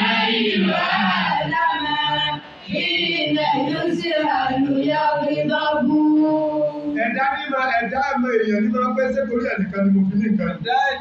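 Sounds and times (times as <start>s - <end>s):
boy chanting into a microphone: 0.0s - 7.5s.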